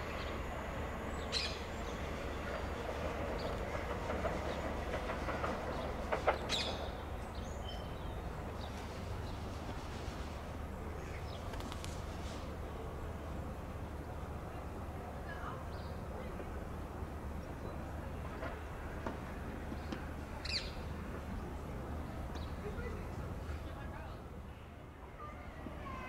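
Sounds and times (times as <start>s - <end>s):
train wheels on rails: 0.0s - 24.0s.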